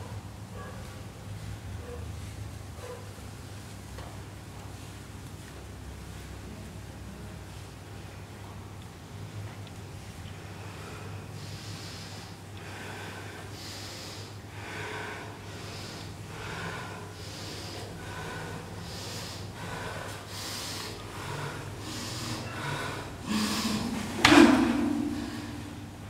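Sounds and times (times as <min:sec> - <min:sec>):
steady low hum: 0:00.0 - 0:26.0
person breathing heavily: 0:10.4 - 0:26.0.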